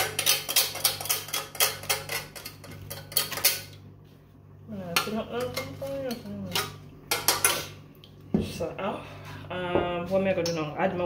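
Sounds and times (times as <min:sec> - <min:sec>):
person speaking: 0:04.7 - 0:06.7.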